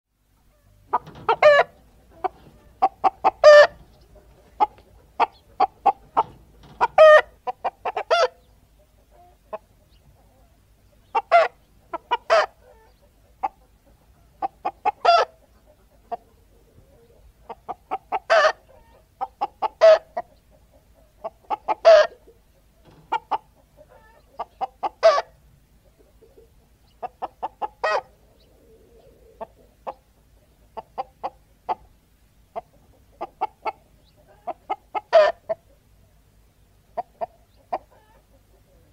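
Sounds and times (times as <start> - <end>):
chicken clucking: 0.4 - 38.9
chicken squawk: 0.5 - 8.4, 10.2 - 13.6, 14.2 - 17.2, 17.8 - 20.2, 21.0 - 22.4, 23.1 - 25.4, 26.2 - 30.0, 33.2 - 35.8, 37.0 - 38.9.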